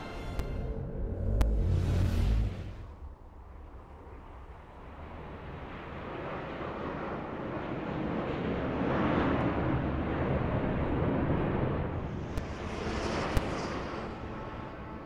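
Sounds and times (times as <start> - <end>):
jet plane roar: 5.0 - 15.0.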